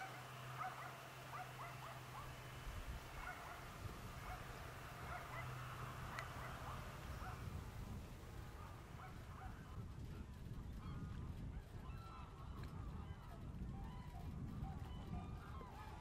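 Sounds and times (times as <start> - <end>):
geese honking: 0.0 - 7.5
low steady hum: 0.0 - 16.0.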